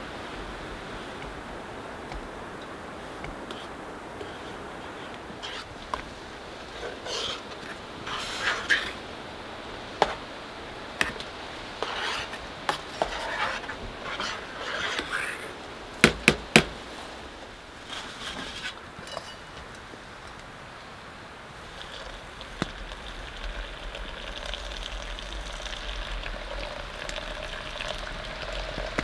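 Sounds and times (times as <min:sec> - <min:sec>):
metal utensil scraping cooking pot: 0:05.4 - 0:05.7, 0:06.8 - 0:09.0, 0:11.8 - 0:15.6.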